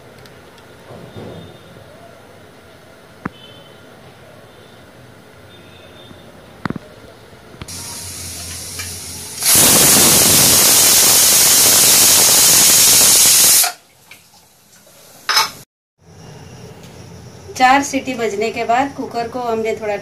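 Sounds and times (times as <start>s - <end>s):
pressure cooker whistling steam hiss: 7.7s - 13.8s.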